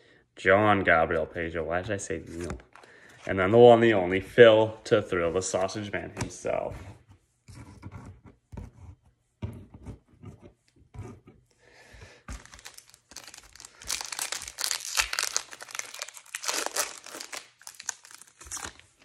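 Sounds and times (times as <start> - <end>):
cards knocking and rustling: 12.1 - 19.0
wrapper crinkling and tearing: 12.3 - 19.0.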